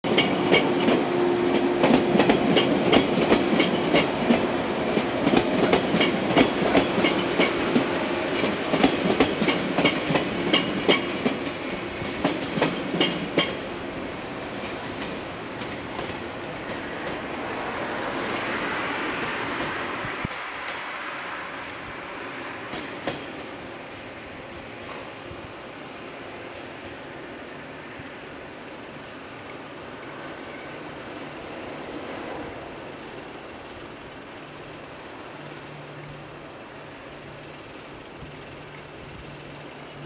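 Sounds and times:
train wheels clacking over rail joints: 0.1s - 13.7s.

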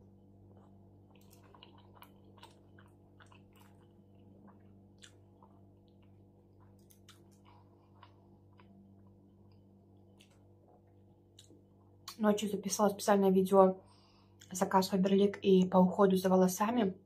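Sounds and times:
low steady hum: 0.0s - 17.0s
close-up chewing: 0.4s - 11.6s
wet mouth clicks and smacks: 4.5s - 8.7s.

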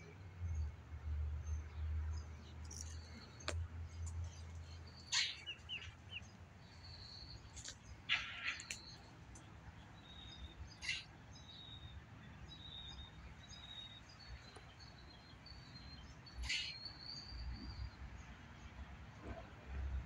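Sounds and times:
small birds chirping: 1.4s - 18.3s
harsh bird calls: 2.6s - 9.2s, 10.1s - 11.2s, 13.5s - 17.6s.

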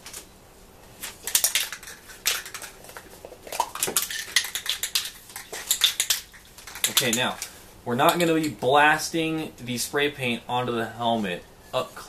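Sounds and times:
spray can ball rattling: 1.0s - 7.5s.

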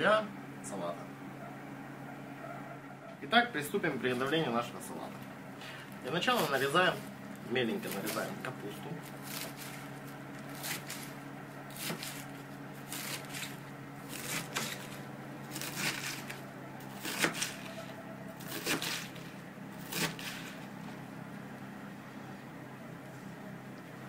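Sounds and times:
steady low hum: 0.0s - 24.0s
knife chopping on wooden board: 10.5s - 11.1s, 11.7s - 12.3s, 12.9s - 17.8s, 18.4s - 19.2s, 19.8s - 20.5s.

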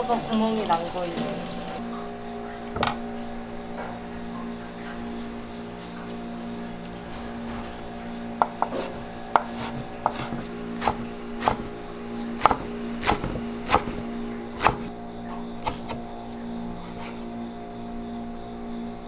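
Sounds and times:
steady low hum: 0.0s - 19.0s
knife chopping on wooden board: 8.4s - 14.9s, 15.6s - 16.0s.

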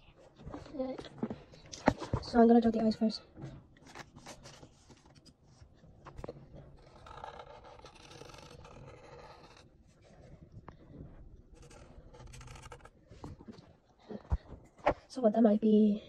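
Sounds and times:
marker tip rubbing on paper: 11.6s - 12.9s.

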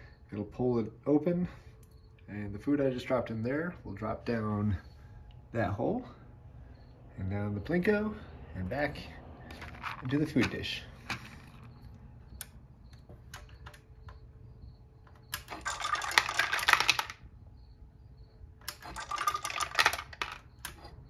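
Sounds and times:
kibble clattering through pegs: 9.5s - 12.0s, 15.0s - 17.3s, 18.6s - 21.0s.

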